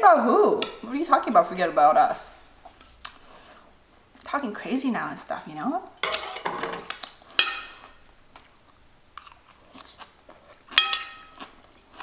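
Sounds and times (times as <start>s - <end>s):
person chewing food: 6.9s - 12.0s
fork clinking on plate: 10.7s - 11.4s.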